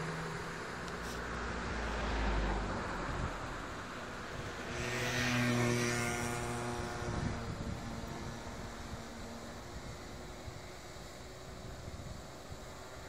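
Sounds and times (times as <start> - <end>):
engine passing by: 0.0 - 12.8
wind buffeting microphone: 4.2 - 12.9.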